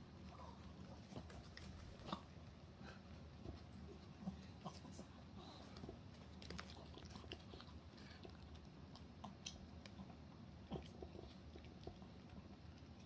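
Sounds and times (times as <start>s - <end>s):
dog licking and chewing: 3.4s - 13.0s
tongue and teeth clicks: 5.7s - 13.0s.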